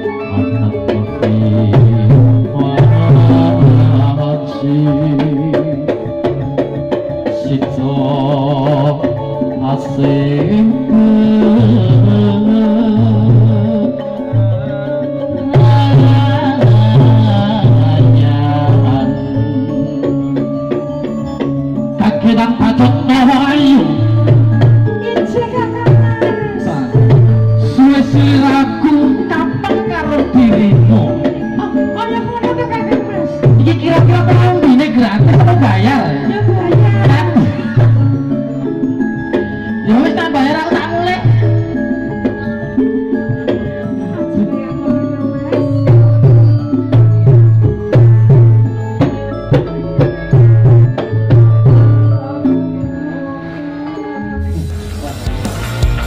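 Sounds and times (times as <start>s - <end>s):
person singing: 0.0s - 6.3s, 7.2s - 20.9s, 21.9s - 38.8s, 49.0s - 56.0s
wavering melody: 0.0s - 56.0s
hand drum beating: 0.1s - 53.0s
repeating bass line: 54.2s - 56.0s.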